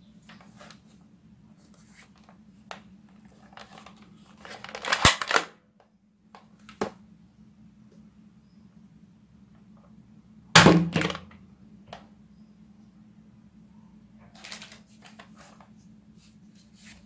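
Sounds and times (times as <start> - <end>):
plastic toy blaster rattling and clicking: 3.6 - 5.6.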